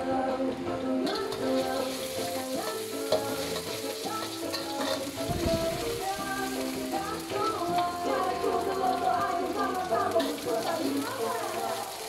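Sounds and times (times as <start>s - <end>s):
background music: 0.0s - 12.0s
food sizzling in a wok: 0.2s - 12.0s
spatula scraping wok: 1.0s - 8.9s.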